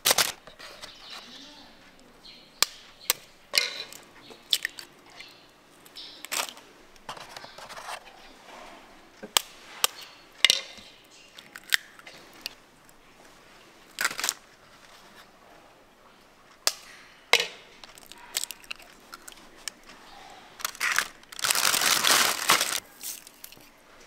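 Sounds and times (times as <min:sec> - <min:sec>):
utensils and containers clicking: 0:03.1 - 0:05.3.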